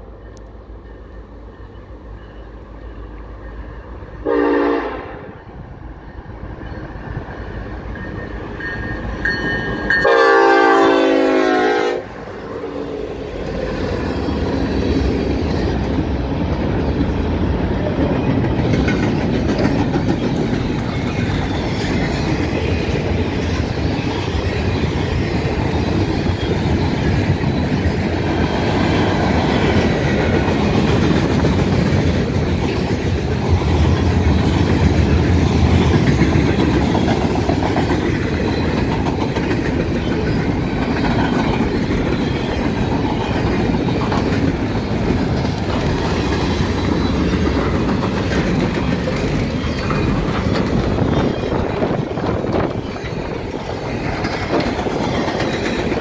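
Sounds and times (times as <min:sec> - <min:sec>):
train air horn: 0:04.2 - 0:05.4, 0:10.0 - 0:12.3
wheels clacking on rails: 0:05.8 - 0:56.0.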